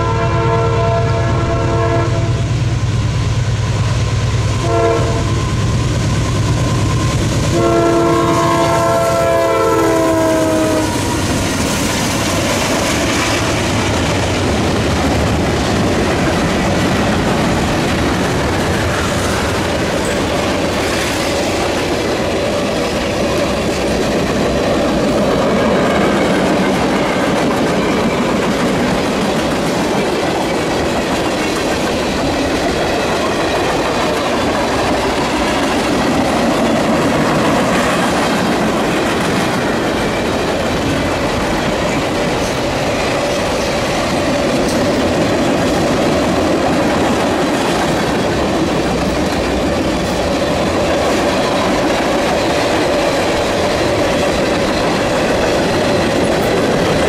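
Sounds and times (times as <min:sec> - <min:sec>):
train chime air horn: 0:00.0 - 0:02.5, 0:04.6 - 0:05.5, 0:07.5 - 0:11.2
locomotive engines rumbling: 0:00.0 - 0:57.0
train wheels clattering over rail joints: 0:08.3 - 0:57.0.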